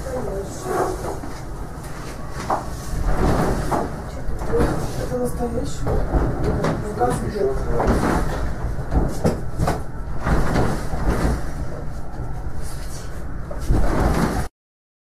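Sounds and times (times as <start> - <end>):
low rumbling: 0.0 - 14.5.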